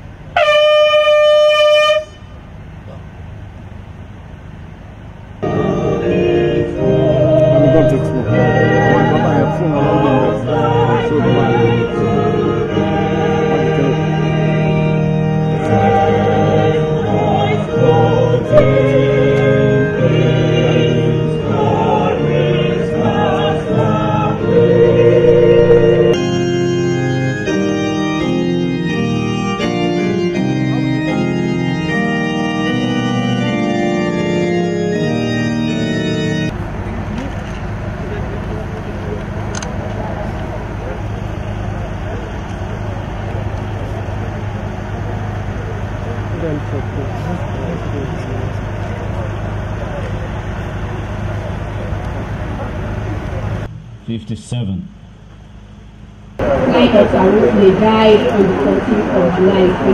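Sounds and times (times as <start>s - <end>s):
choir singing a hymn: 5.4s - 36.6s, 56.4s - 59.9s
keyboard playing organ chords: 5.4s - 37.1s, 37.7s - 54.2s, 56.4s - 59.9s.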